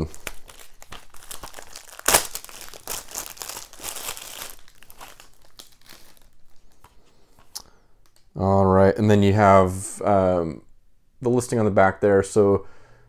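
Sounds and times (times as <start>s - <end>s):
plastic wrap crinkling: 0.0s - 8.2s.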